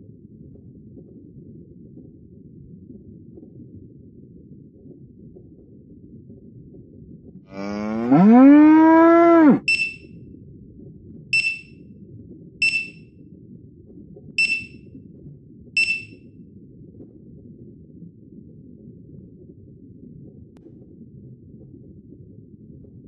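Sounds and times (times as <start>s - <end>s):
cow mooing: 7.5s - 9.7s
short high dings: 9.6s - 10.0s, 11.4s - 11.7s, 12.6s - 13.0s, 14.4s - 14.8s, 15.8s - 16.2s.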